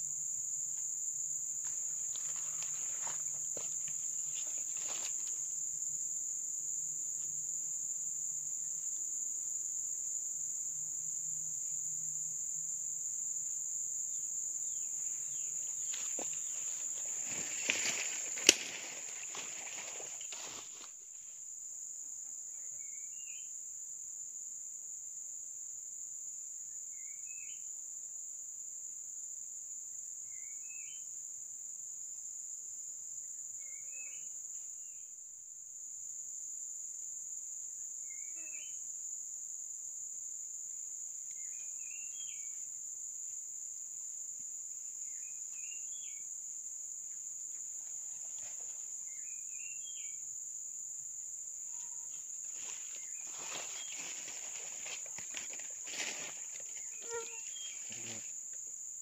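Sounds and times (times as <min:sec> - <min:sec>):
high-pitched insect drone: 0:51.4 - 0:59.0.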